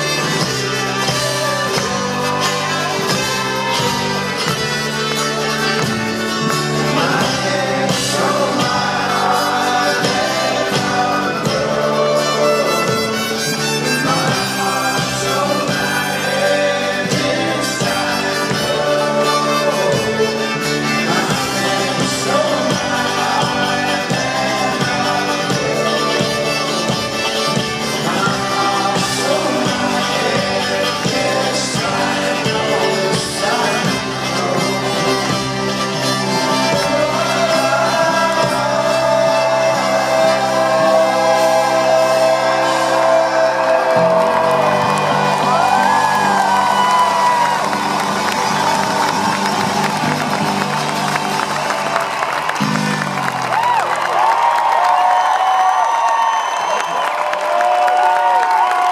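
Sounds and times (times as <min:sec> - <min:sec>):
person singing: 0:00.0 - 0:49.5
banjo: 0:00.0 - 0:53.4
mandolin: 0:00.0 - 0:53.4
accordion: 0:00.0 - 0:53.5
upright bass: 0:00.0 - 0:55.0
folk-rock band playing: 0:00.0 - 0:58.9.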